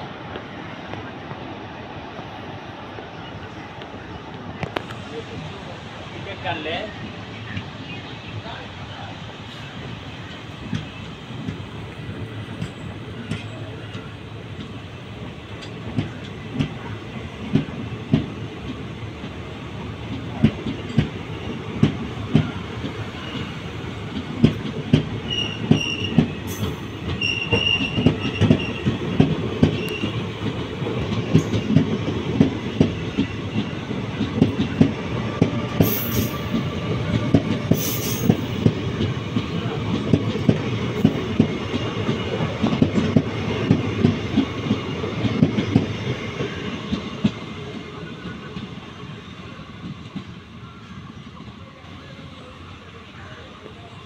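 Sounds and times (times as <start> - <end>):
train rumbling: 0.0 - 54.0
wheels clickety-clack on rail joints: 8.4 - 50.5
high wheel squeal: 25.2 - 28.9.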